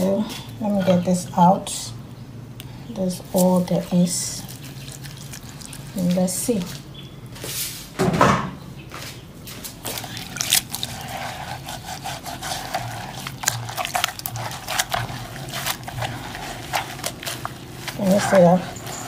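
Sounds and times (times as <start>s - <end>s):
hands rubbing against bowl: 9.9s - 19.0s.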